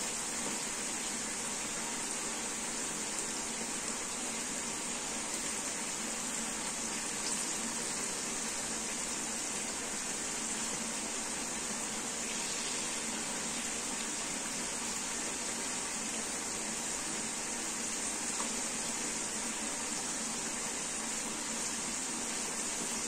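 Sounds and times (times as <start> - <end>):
green beans sizzling in hot oil: 6.3 - 11.1, 11.8 - 17.0.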